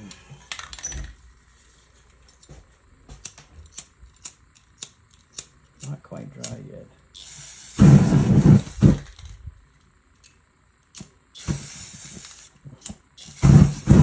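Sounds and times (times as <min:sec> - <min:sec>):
flame jet hissing and roaring: 0:07.2 - 0:09.4, 0:11.4 - 0:14.0.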